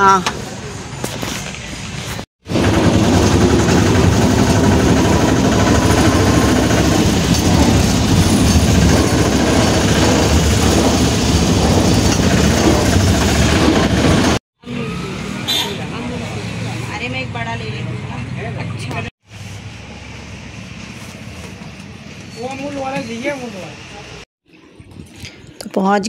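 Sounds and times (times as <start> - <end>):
three-wheeler engine running: 2.4 - 16.8.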